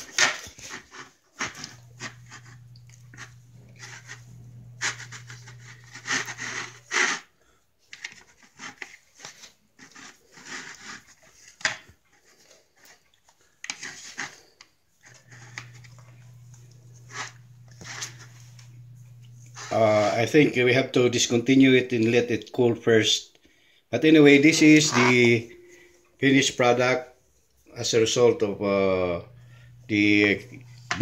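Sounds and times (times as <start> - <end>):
knife sawing through bread: 3.8 - 7.3, 9.8 - 11.4.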